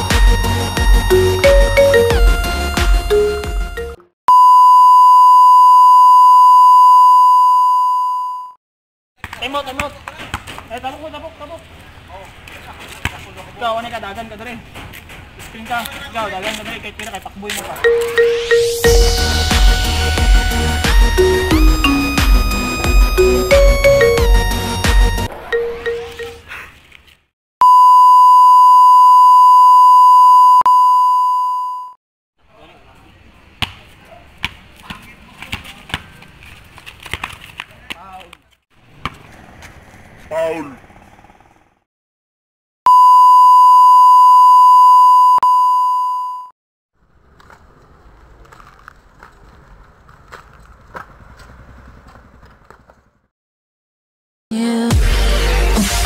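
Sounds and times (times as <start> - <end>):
electronic music: 0.0 - 4.0, 17.8 - 26.4, 54.9 - 56.0
faint outdoor background: 0.0 - 8.6, 9.2 - 41.9
high electronic beep tone: 1.1 - 2.4, 3.1 - 8.6, 17.8 - 19.9, 21.0 - 26.4, 27.6 - 32.0, 42.9 - 46.5.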